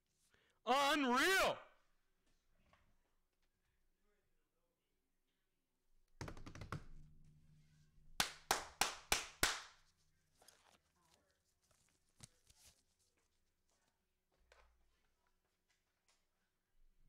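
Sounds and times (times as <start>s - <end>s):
taps on hard surface: 6.2s - 7.1s.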